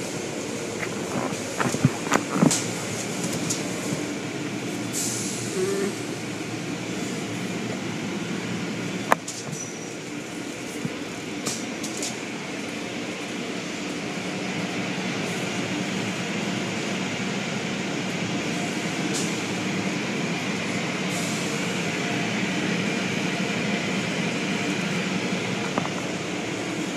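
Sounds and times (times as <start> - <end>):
car wash brushes scrubbing: 0.6 - 4.2.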